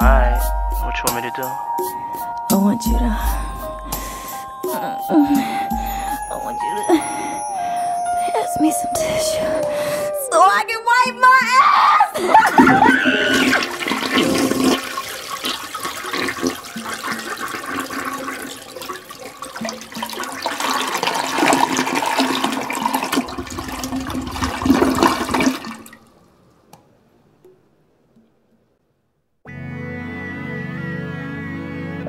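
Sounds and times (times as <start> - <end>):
faint steady tones: 0.0 - 11.5
water rushing like a flush: 12.3 - 26.1.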